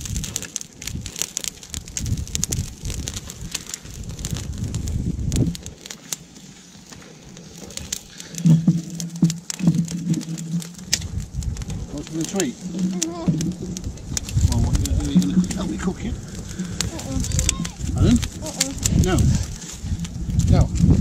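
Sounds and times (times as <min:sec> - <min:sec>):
campfire crackling and popping: 0:00.0 - 0:21.0
low rumble: 0:07.8 - 0:21.0.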